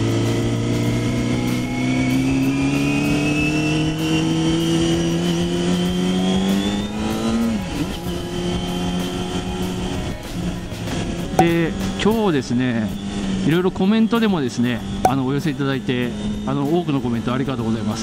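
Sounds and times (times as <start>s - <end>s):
motorcycle engine revving: 0.0s - 12.1s.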